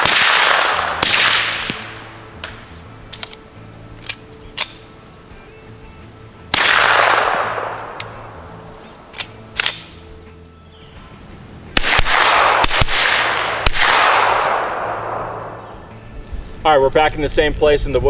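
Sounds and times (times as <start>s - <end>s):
gunshot echo: 0.0s - 2.6s, 6.5s - 8.4s, 11.8s - 15.7s
suppressed pistol shots: 0.0s - 3.4s, 6.5s - 10.0s, 11.7s - 15.8s.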